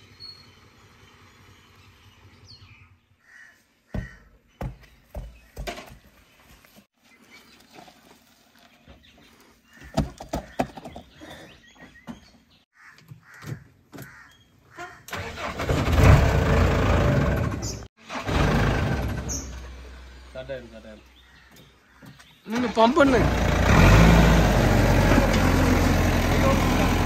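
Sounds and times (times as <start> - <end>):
diesel engine starting and running: 15.1 - 21.4, 22.5 - 27.0.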